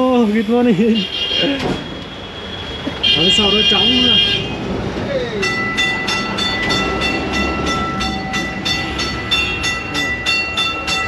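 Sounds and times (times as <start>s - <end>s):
tram low rumble: 4.4s - 11.0s
high ringing tones: 5.4s - 11.0s
metallic clicks of tram: 5.7s - 11.0s.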